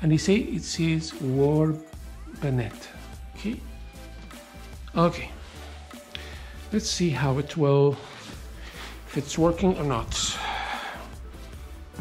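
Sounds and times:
background music: 0.0s - 12.0s.

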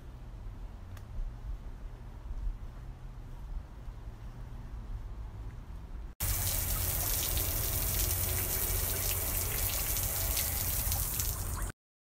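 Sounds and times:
low steady hum: 0.0s - 11.7s
loud running water: 6.2s - 11.7s.

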